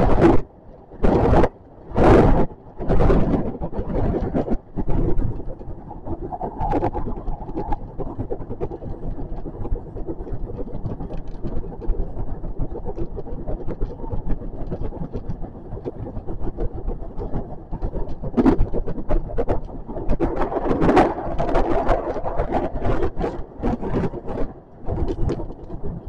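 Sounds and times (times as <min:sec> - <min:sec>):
clicks and rattles: 0:17.2 - 0:26.0.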